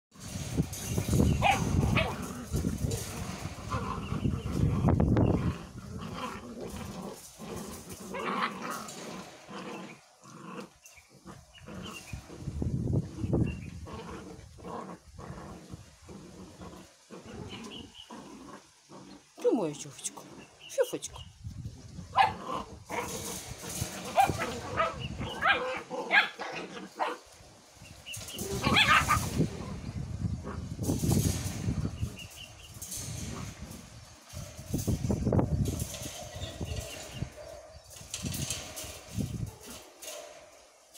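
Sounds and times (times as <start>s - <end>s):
puppies play growling: 0.1s - 19.4s, 21.9s - 40.9s
puppies yapping: 0.2s - 10.0s, 22.1s - 27.3s, 27.9s - 29.7s.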